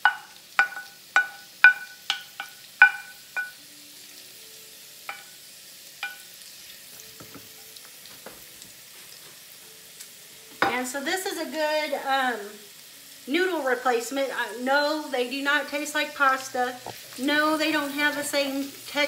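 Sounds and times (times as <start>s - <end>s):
wooden spoon knocking on pan: 0.0s - 3.6s, 5.1s - 5.3s, 6.0s - 6.2s, 7.2s - 8.7s
faint frying: 0.0s - 19.0s.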